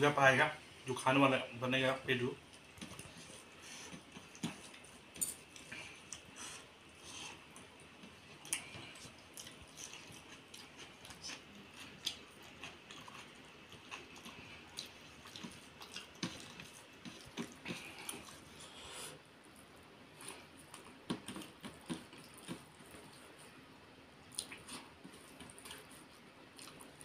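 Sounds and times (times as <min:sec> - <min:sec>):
person chewing food: 0:02.5 - 0:23.6, 0:24.2 - 0:27.0.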